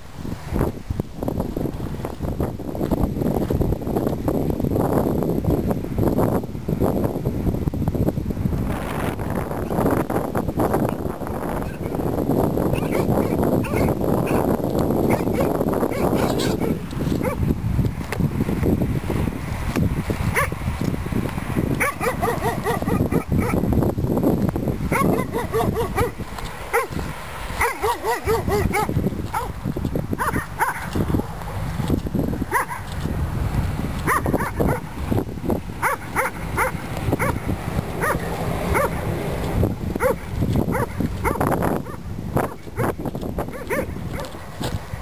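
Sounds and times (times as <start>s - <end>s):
dogs barking: 12.7s - 14.5s, 15.1s - 17.5s, 20.3s - 20.6s, 21.8s - 23.6s, 24.9s - 27.0s, 27.6s - 29.6s, 30.2s - 31.3s, 32.5s - 32.9s, 34.0s - 34.9s, 35.8s - 39.0s, 40.0s - 44.4s.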